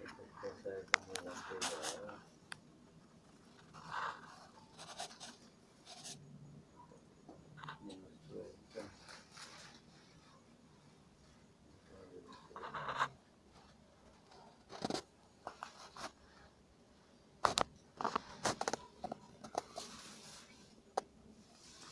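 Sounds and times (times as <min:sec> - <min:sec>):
handling rustle: 0:00.0 - 0:02.2, 0:08.6 - 0:10.4, 0:17.5 - 0:21.9.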